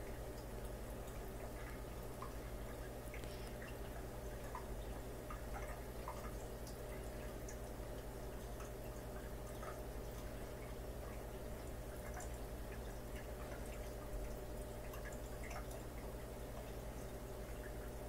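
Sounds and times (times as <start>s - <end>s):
aquarium low hum: 0.0s - 18.0s
water dripping: 0.0s - 18.0s
small ticks: 0.4s - 7.7s.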